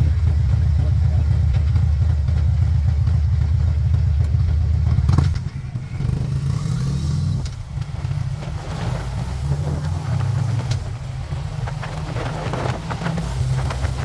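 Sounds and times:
motorcycle engine rumbling: 0.0 - 14.0
wind noise on microphone: 5.2 - 14.0.

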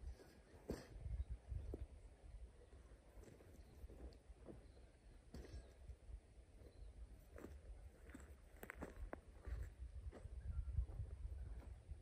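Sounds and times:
distant bird calls: 0.0 - 8.6.

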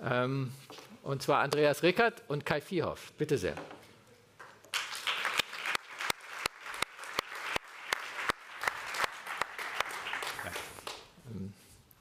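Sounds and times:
audience applause: 4.7 - 11.1.

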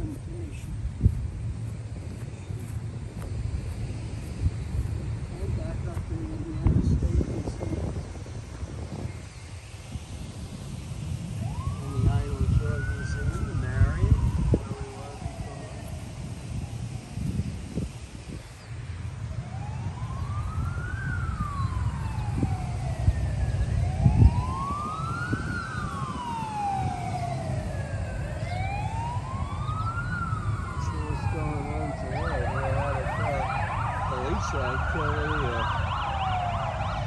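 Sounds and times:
fast warbling siren: 11.2 - 17.6, 19.3 - 37.0
siren wailing: 11.2 - 17.6, 19.2 - 37.0.

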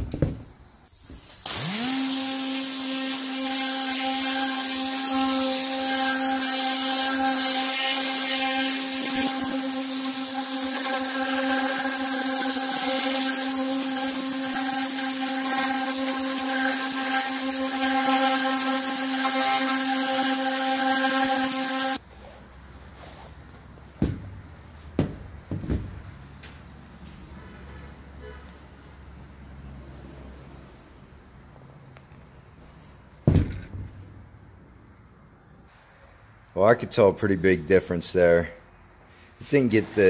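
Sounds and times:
air cleaning gun hissing: 0.9 - 22.4.

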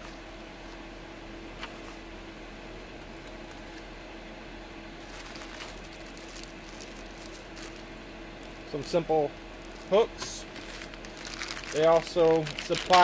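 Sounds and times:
low background hum: 0.0 - 13.0
cardboard box and plastic bag rustling: 5.0 - 7.8, 8.4 - 13.0.

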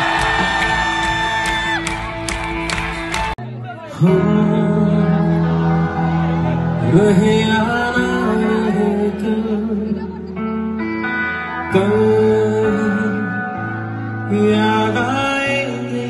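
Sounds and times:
live band guitar and keyboard: 0.0 - 16.0
man singing: 3.6 - 16.0.

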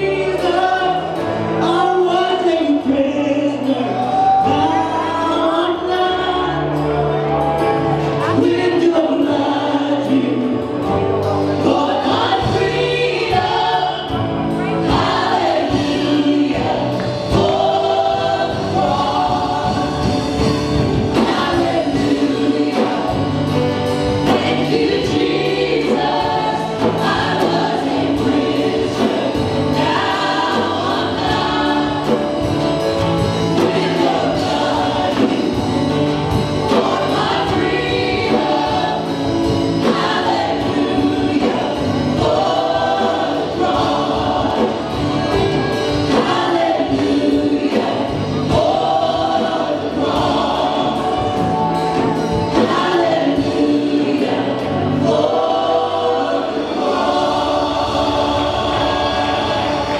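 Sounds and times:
man singing into microphone: 0.0 - 6.7
band accompaniment: 0.0 - 59.9
gospel choir singing: 0.0 - 59.9.

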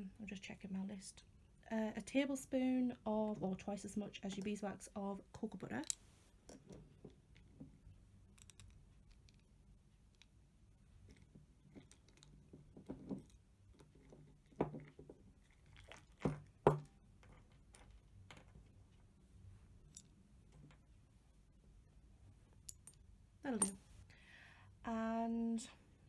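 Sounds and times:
faint scraping and tapping: 4.2 - 9.5, 10.9 - 21.0.

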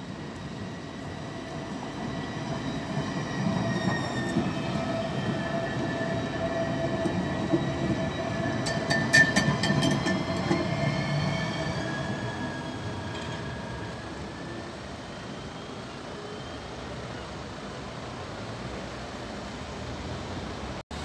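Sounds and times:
tram passing with high whine: 0.0 - 21.0.

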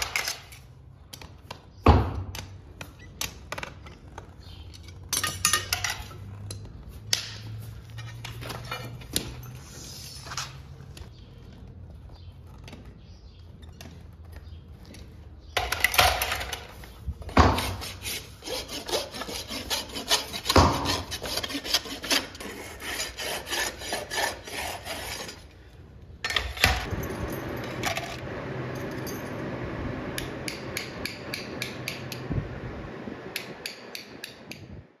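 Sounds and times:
rasp filing hoof: 17.4 - 25.5.

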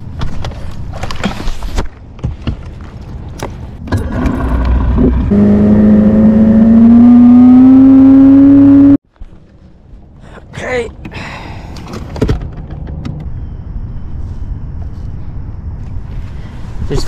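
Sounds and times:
outboard motor running: 3.9 - 6.2.

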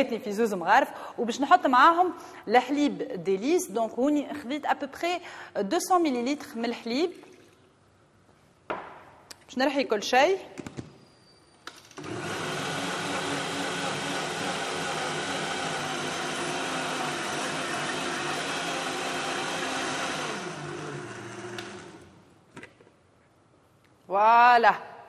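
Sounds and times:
blender running: 12.0 - 22.2
blender switch click: 21.5 - 21.8.

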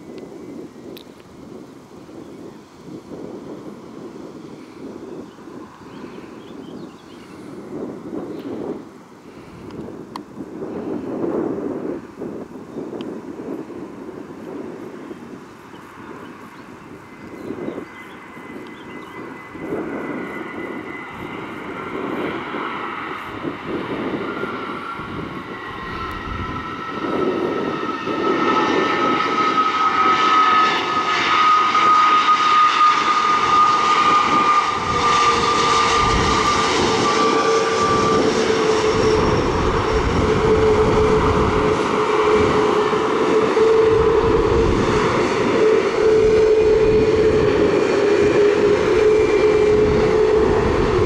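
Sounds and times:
jet engine roar: 0.0 - 51.0
engine whine falling in pitch: 15.8 - 51.0.

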